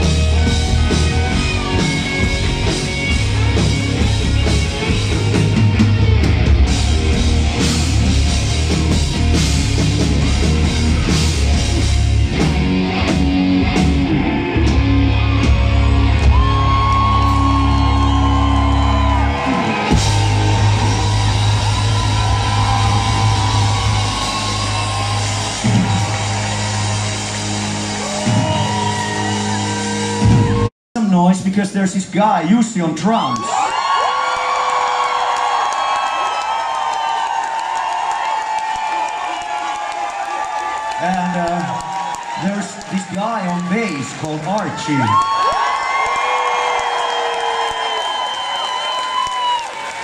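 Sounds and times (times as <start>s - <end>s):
live rock band playing: 0.0s - 30.7s.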